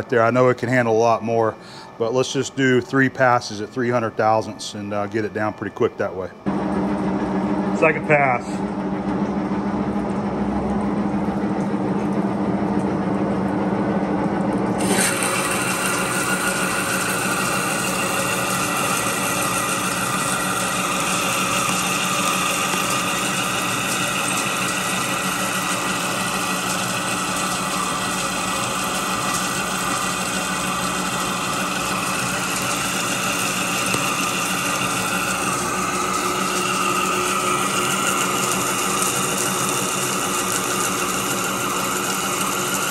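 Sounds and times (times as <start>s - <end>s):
lathe gear drive humming: 0.0s - 42.9s
loud metal cutting noise: 14.8s - 42.9s.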